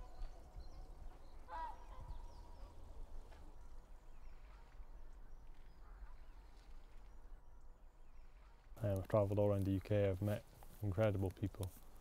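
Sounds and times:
distant waterfowl calls: 0:01.4 - 0:02.8.

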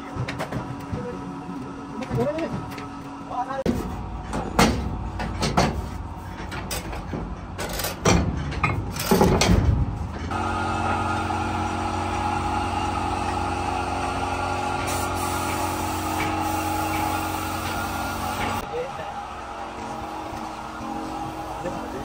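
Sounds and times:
knocks and clatter: 0:03.7 - 0:10.3.

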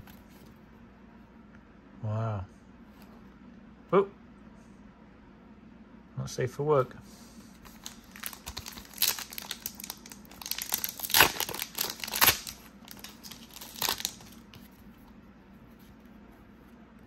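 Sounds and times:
card pack wrapper tearing and crinkling: 0:07.7 - 0:14.7.

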